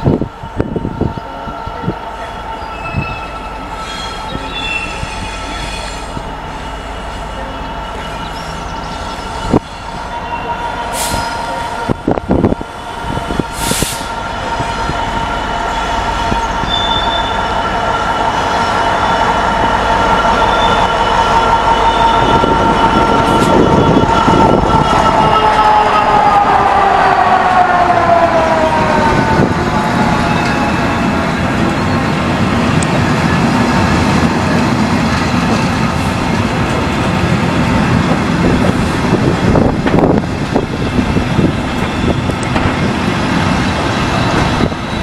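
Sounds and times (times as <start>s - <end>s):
diesel locomotive engine: 0.0s - 45.0s
train wheels rumbling: 0.0s - 45.0s
brief hisses: 13.6s - 14.1s.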